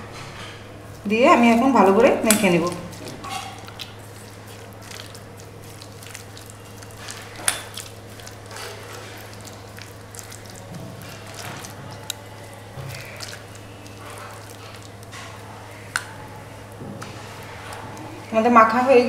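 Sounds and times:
steady low hum: 0.0s - 19.0s
batter squelching in a bowl: 0.4s - 19.0s.

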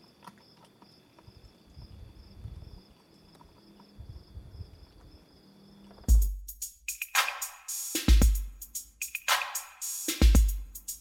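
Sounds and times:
crickets chirping: 0.0s - 7.9s
loud music with heavy bass: 6.1s - 11.0s.

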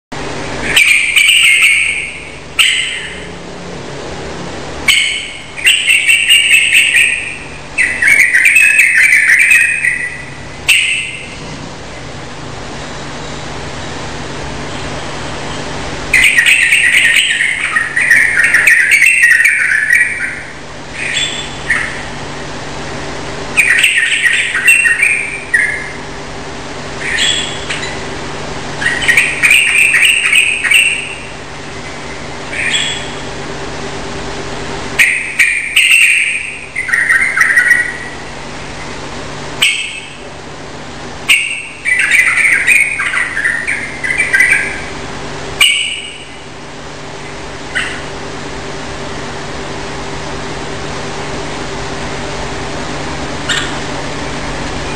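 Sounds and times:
bird singing: 0.6s - 3.4s, 4.8s - 11.4s, 15.5s - 22.2s, 23.5s - 26.0s, 27.0s - 28.1s, 28.8s - 33.3s, 35.0s - 38.9s, 39.6s - 40.2s, 41.3s - 45.0s, 45.6s - 46.5s, 47.2s - 48.1s, 53.4s - 53.8s.

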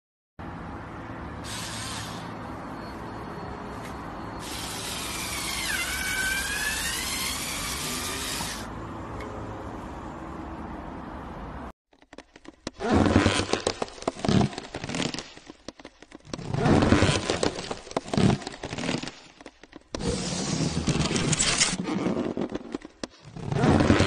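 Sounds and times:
crackling and scraping: 11.9s - 24.0s.

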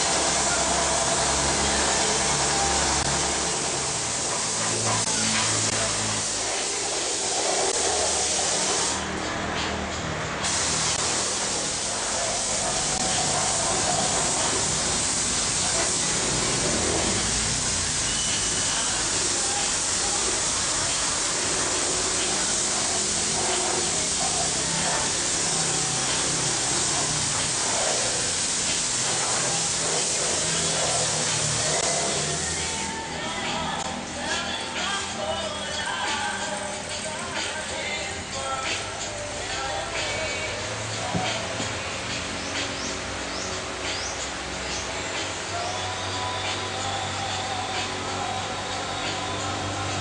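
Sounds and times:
paint spray gun hissing: 0.0s - 9.0s, 10.4s - 33.1s.

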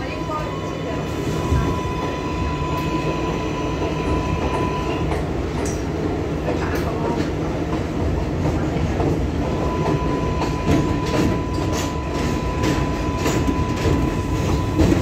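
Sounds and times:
wheels rumbling on track: 0.0s - 15.0s.

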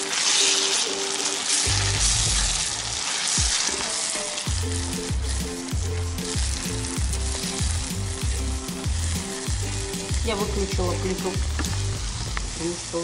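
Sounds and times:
spatula stirring in pan: 0.0s - 10.2s
food sizzling in frying pan: 0.0s - 13.0s
background music with low beat: 1.7s - 2.7s, 4.5s - 12.6s.

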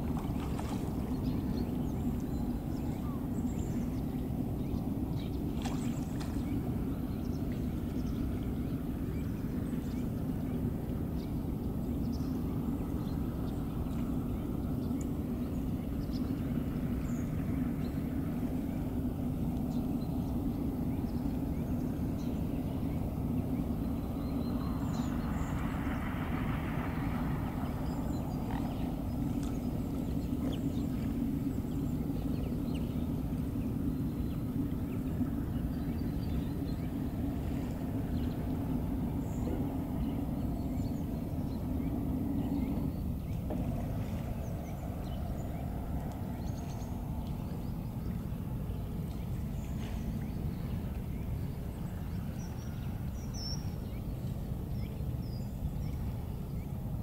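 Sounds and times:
low outdoor rumble: 0.0s - 57.0s
waterbird calls: 26.4s - 54.1s.

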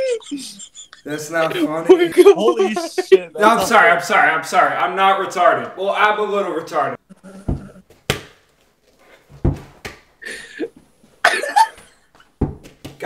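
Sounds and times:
ball thudding: 7.4s - 8.5s, 9.3s - 10.1s, 12.4s - 13.0s.

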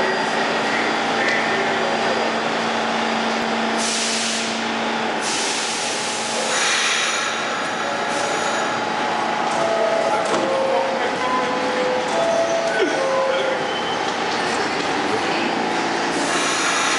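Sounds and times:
subway car electrical hum: 0.0s - 16.9s
compressed air hissing: 5.2s - 7.4s, 16.2s - 16.9s.

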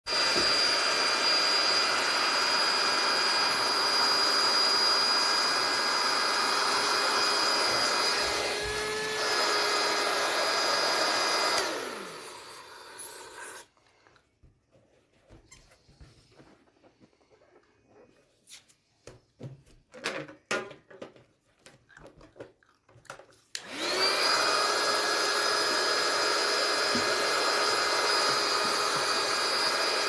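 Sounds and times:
motor winding down: 0.1s - 13.6s, 23.6s - 30.0s
electric balloon pump whining: 0.1s - 13.8s, 23.5s - 30.0s.

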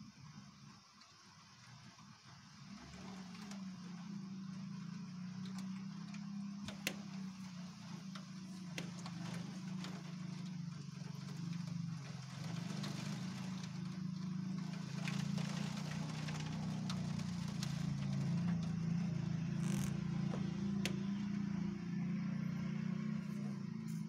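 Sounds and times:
faint clicks: 0.9s - 18.8s.

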